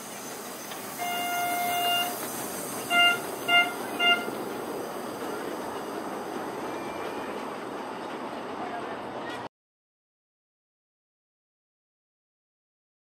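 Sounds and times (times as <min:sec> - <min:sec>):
steam locomotive whistle: 0:00.9 - 0:02.2, 0:02.8 - 0:04.4.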